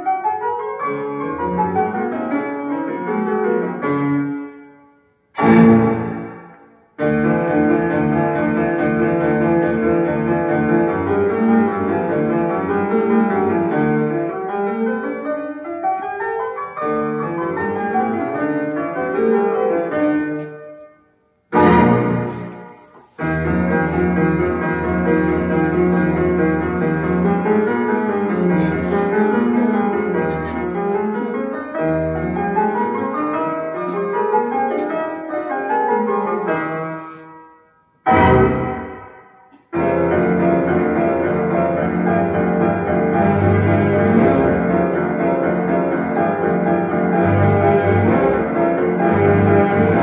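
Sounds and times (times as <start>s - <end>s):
piano scales: 0.0s - 50.0s
loud orchestral chord: 21.6s - 22.6s, 38.1s - 39.4s.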